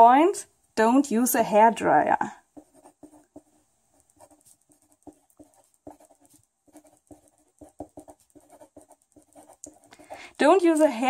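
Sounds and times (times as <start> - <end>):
pen scratching on paper: 2.6 - 10.2.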